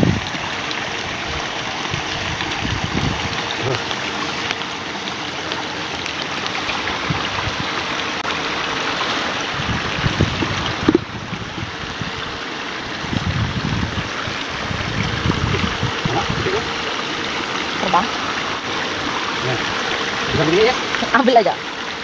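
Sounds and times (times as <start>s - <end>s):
stream running over rocks: 0.0s - 22.0s.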